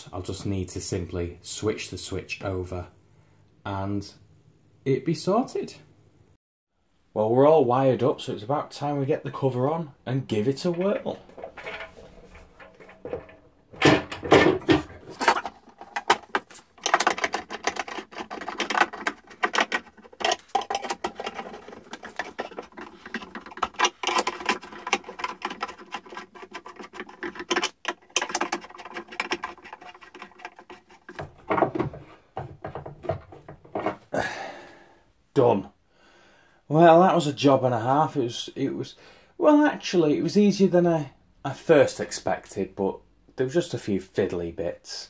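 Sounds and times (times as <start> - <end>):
plastic cover clicking and rattling: 10.8 - 34.0.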